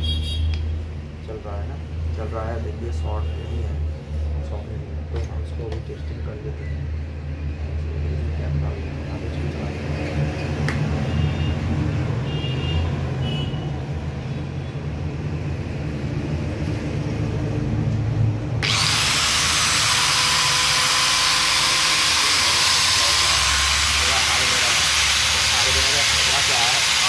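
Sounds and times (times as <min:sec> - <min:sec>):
angle grinder motor running: 0:18.6 - 0:27.0
loud steady hiss: 0:18.6 - 0:27.0.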